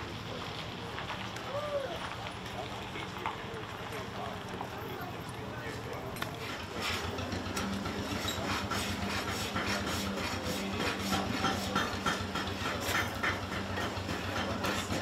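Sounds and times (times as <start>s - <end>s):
hoof rasp scraping: 6.4s - 15.0s.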